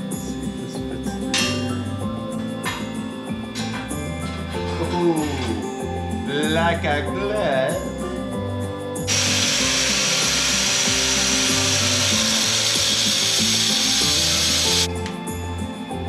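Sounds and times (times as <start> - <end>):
background music: 0.0 - 16.0
angle grinder cutting steel: 9.1 - 14.9.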